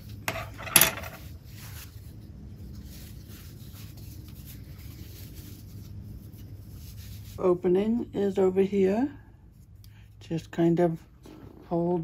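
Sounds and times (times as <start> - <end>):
cloth rubbing and rustling: 0.0 - 8.2
steady low hum: 0.0 - 12.0.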